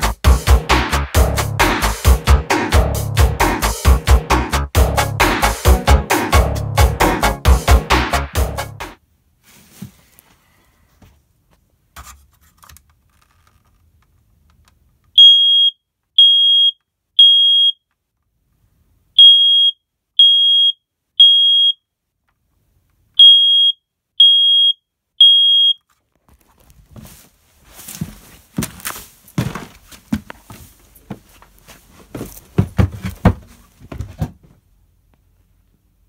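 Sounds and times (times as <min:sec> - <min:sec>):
rustling: 0:09.4 - 0:11.2, 0:25.9 - 0:34.6
smoke alarm beeping: 0:15.2 - 0:17.8, 0:19.2 - 0:21.8, 0:23.2 - 0:25.8.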